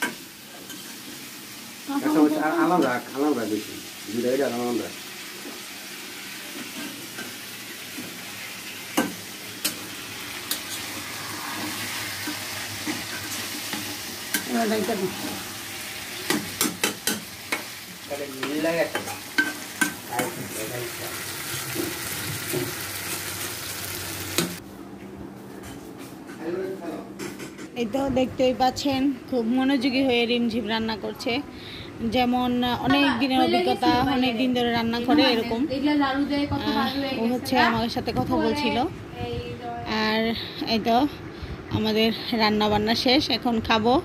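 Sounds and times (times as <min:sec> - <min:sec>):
curry sizzling in a pan: 0:00.0 - 0:24.6.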